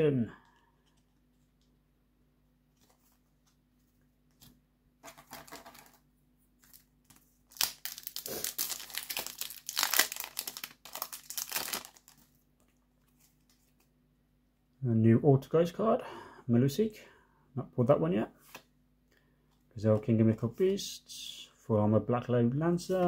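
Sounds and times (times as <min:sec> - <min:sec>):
foil wrapper crinkling and tearing: 0:05.1 - 0:06.0, 0:06.6 - 0:12.4.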